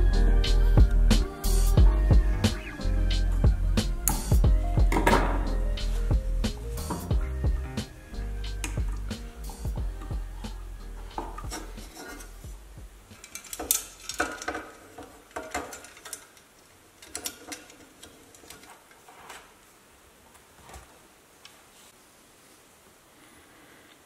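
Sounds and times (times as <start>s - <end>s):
clicks and metallic clatter of parts: 13.1s - 19.5s.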